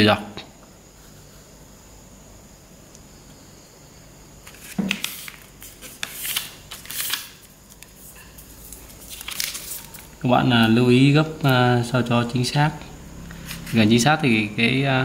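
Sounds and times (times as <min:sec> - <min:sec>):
paper sliding strokes: 0:04.4 - 0:10.0, 0:13.3 - 0:13.9
paper rustling: 0:04.4 - 0:10.2, 0:13.4 - 0:13.9.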